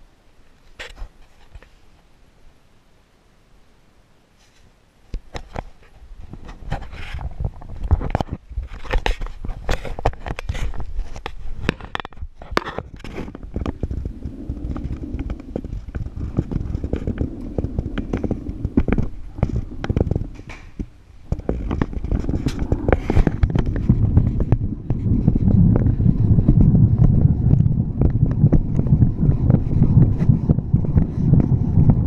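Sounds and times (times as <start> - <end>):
clothing rubbing on microphone: 0.7 - 2.0, 4.4 - 32.0
low rumble: 12.8 - 32.0.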